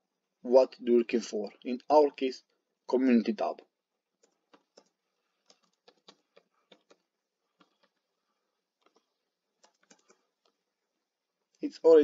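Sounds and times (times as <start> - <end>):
keyboard keys clicking: 4.2 - 7.0, 8.8 - 10.2.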